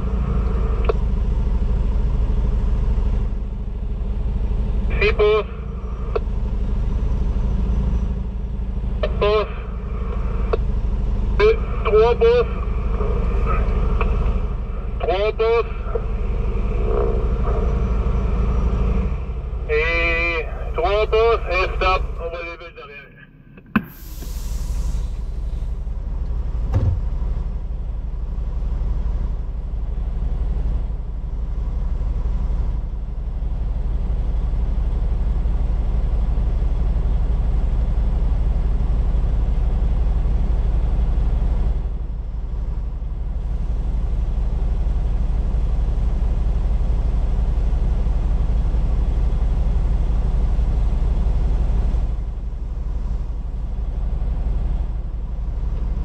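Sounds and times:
truck diesel engine rumble: 0:00.0 - 0:56.0
short knock: 0:23.7 - 0:24.4, 0:26.7 - 0:27.2.

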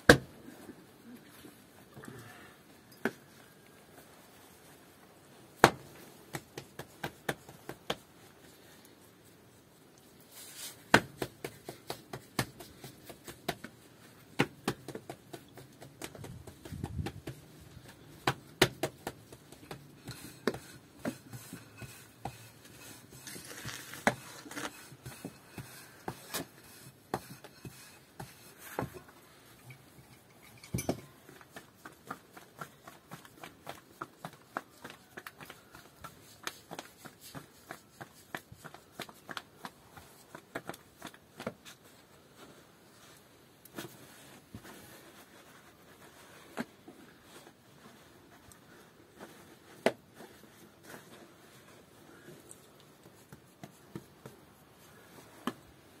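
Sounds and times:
hard objects tapping and knocking: 0:10.9 - 0:22.4, 0:24.9 - 0:36.8.

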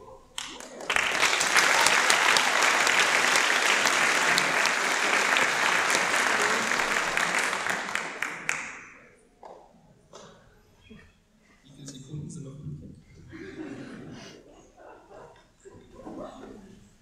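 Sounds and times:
audience applauding: 0:00.4 - 0:09.2.

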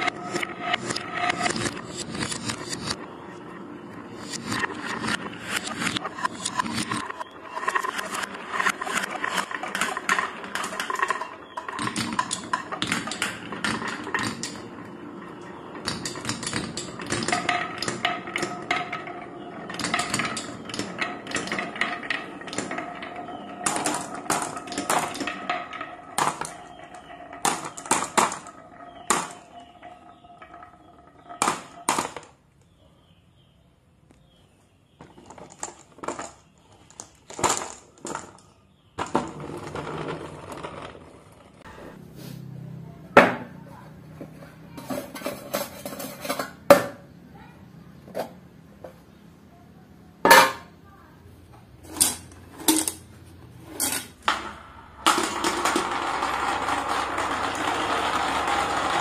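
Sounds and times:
marbles rolling on wooden track: 0:00.0 - 0:03.0, 0:03.9 - 0:32.8, 0:35.0 - 0:42.0, 0:51.4 - 0:59.0
marbles clicking and clattering: 0:04.2 - 0:32.4, 0:35.0 - 0:41.8, 0:51.8 - 0:59.0.

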